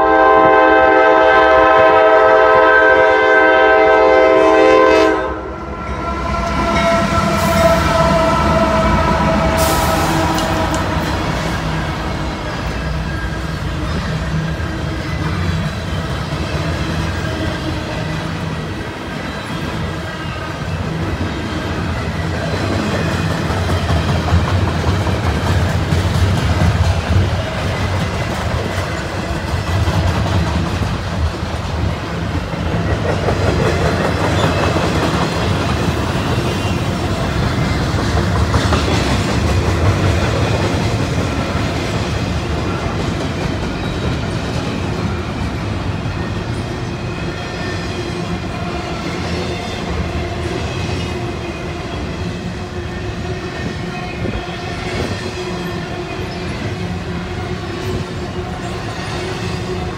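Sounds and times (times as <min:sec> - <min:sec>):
freight train rumbling past: 0:00.0 - 0:59.9
wheels clacking over rails: 0:21.9 - 0:45.8.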